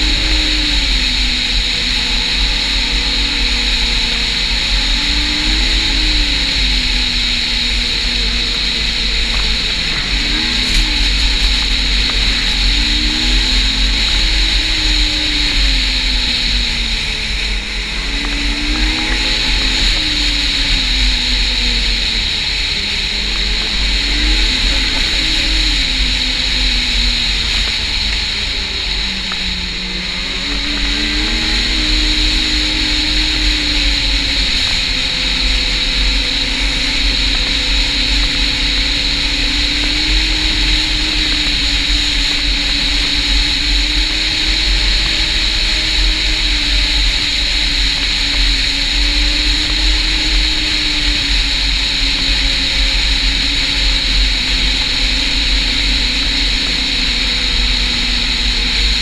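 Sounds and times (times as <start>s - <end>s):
high whine: 0.0s - 59.0s
snowmobile engine running: 0.0s - 59.0s
low rumble: 7.8s - 29.4s.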